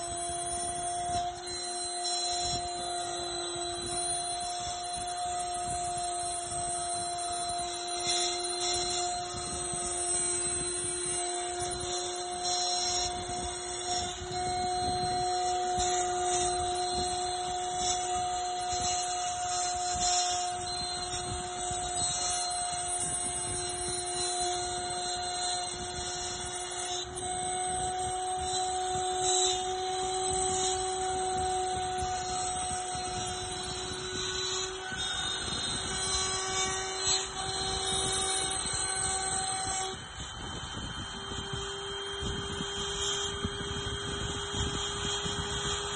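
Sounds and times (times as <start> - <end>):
bit rasping wood: 0.0 - 45.9
cutter carving wood: 0.0 - 45.9
router spindle whining: 0.0 - 45.9.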